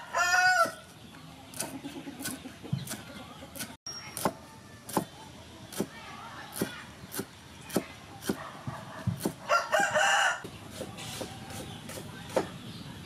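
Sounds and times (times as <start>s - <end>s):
rooster crowing: 0.0s - 0.8s, 9.4s - 10.5s
cleaver chopping on wooden board: 6.6s - 8.4s, 9.0s - 9.4s, 10.4s - 12.6s.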